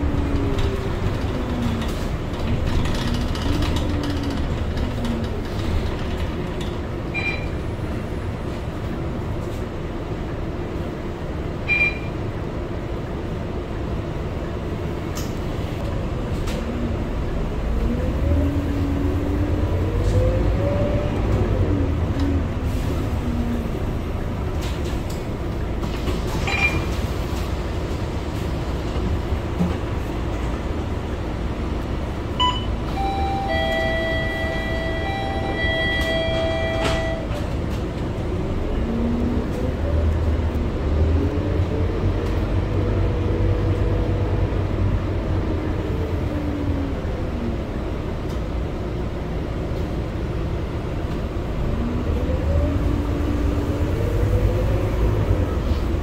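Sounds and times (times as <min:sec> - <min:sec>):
bus engine rumble: 0:00.0 - 0:56.0
bus engine whine: 0:00.0 - 0:56.0
short electronic beep: 0:07.2 - 0:07.6, 0:11.7 - 0:12.1, 0:32.4 - 0:37.3.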